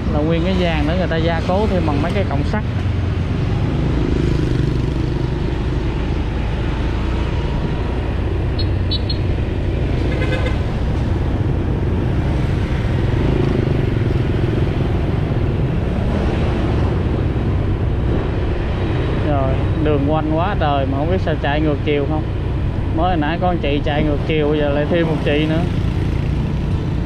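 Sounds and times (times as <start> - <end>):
road noise: 0.0 - 27.0
motorcycle engine: 2.2 - 17.4, 25.0 - 27.0
vehicle horn toot: 8.6 - 9.2, 10.1 - 10.6
short high beeps: 8.6 - 9.3.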